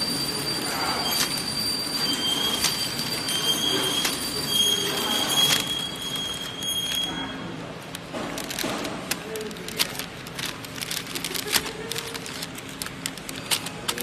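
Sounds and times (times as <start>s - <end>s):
packing machine running: 0.0s - 14.0s
paper packs crackling: 0.0s - 14.0s.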